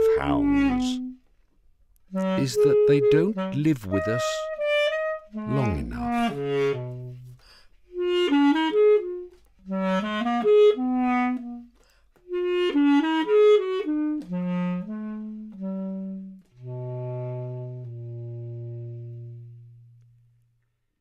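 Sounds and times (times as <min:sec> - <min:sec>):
solo basset horn playing: 0:00.0 - 0:01.2, 0:02.1 - 0:11.7, 0:12.3 - 0:20.1.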